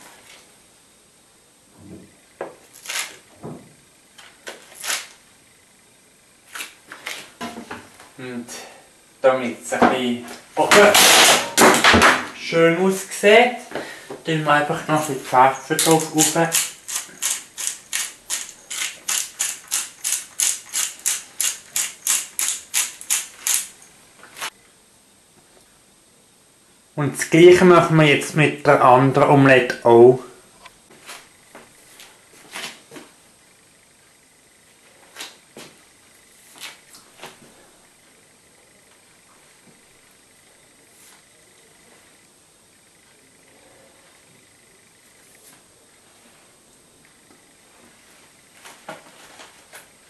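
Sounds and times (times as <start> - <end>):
pepper mill grinding: 15.7 - 23.9.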